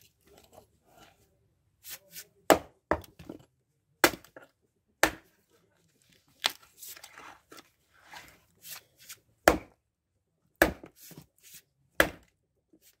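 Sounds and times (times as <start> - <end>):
axe striking log: 2.5 - 3.1, 4.0 - 4.4, 5.0 - 5.3, 9.4 - 9.8, 10.6 - 10.9, 12.0 - 12.3.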